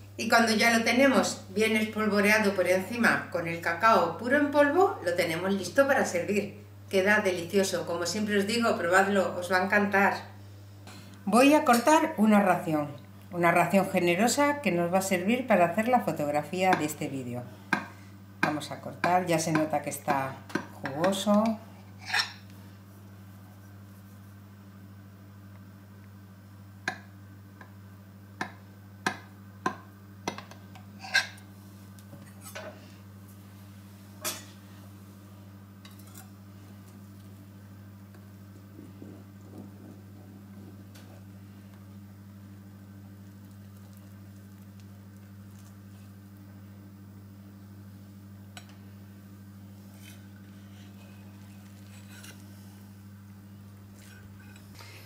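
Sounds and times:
steady low hum: 0.0s - 55.0s
spatula scraping a plate: 22.0s - 22.4s, 31.0s - 31.4s, 49.8s - 52.7s, 54.0s - 54.7s.

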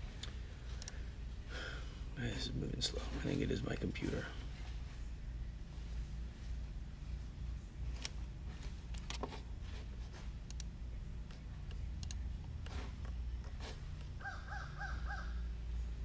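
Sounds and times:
low steady hum: 0.0s - 16.0s
computer mouse clicks: 10.4s - 14.1s.

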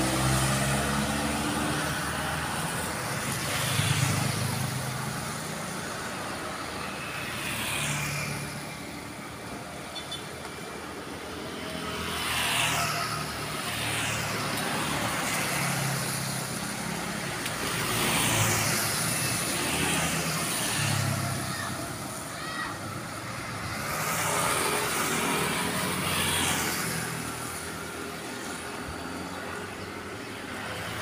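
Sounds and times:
tyres hissing on wet road: 0.0s - 9.8s, 10.7s - 31.0s
vehicles passing: 0.0s - 31.0s.

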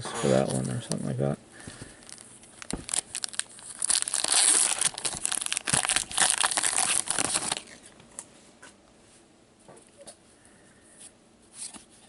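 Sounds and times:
wrapper tearing and crinkling: 2.0s - 7.9s.

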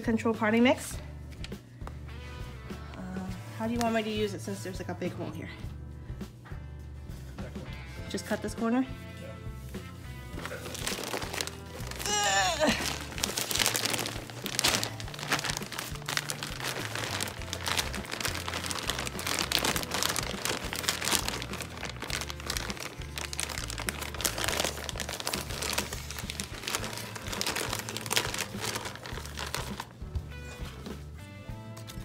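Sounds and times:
background music: 0.0s - 32.0s
plastic bag crinkling: 10.4s - 30.0s.

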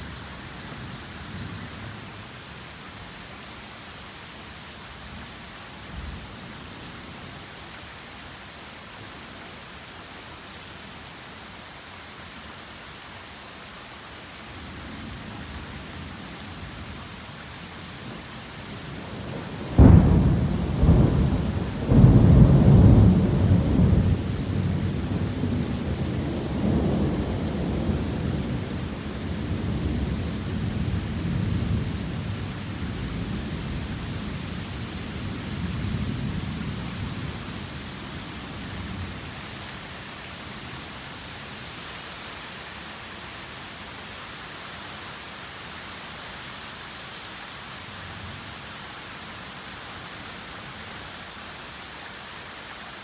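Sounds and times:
heavy rain falling: 0.0s - 53.0s
thunder crack and rumbles: 19.0s - 33.9s.

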